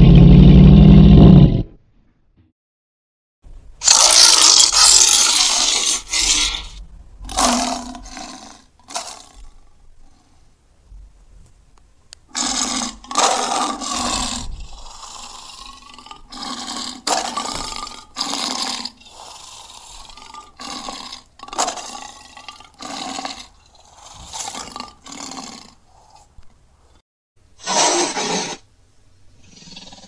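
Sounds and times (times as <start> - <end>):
monster roars: 0.0 - 1.7, 3.8 - 9.6, 12.3 - 25.8.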